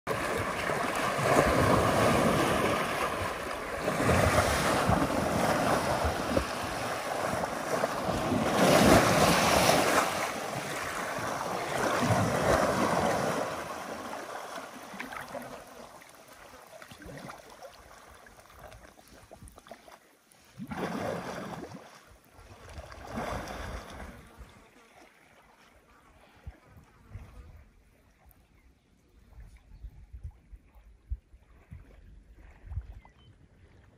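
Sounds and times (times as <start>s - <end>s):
river water churning and splashing: 0.1s - 28.2s
water lapping: 0.1s - 28.6s.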